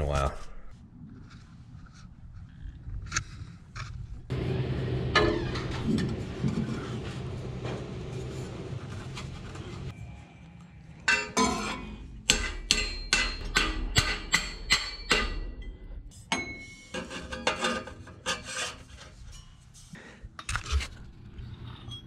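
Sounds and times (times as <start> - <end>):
metal struck with ringing clang: 11.1 - 16.8.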